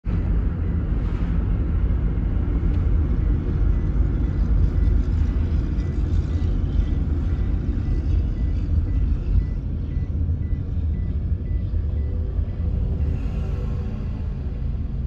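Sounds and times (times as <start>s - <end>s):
road and engine rumble in car: 0.0s - 15.0s
faint high whine: 0.1s - 15.0s.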